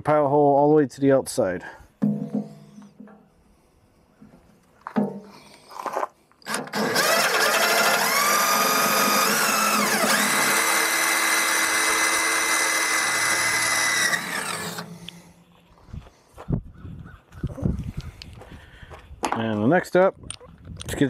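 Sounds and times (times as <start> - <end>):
cordless drill whining through steel: 6.4 - 15.4.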